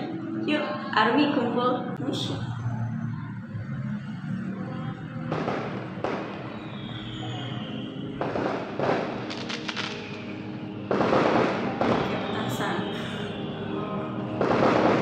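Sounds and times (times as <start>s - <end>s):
sustained music drone: 0.0s - 15.0s
firework bursts and crackles: 5.3s - 13.5s, 14.2s - 15.0s.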